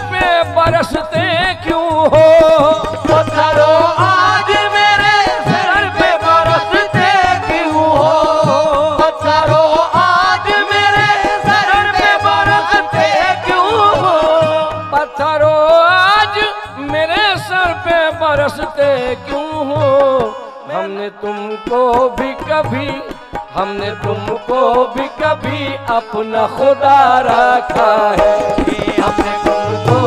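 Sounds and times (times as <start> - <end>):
harmonium: 0.0 - 30.0
men singing: 0.0 - 30.0
hand drum beat: 27.8 - 30.0.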